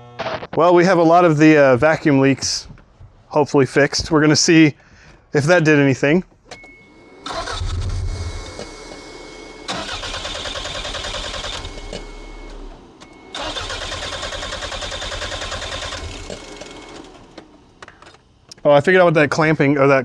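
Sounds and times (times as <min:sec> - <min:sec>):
engine cranking on starter: 0:06.6 - 0:18.4.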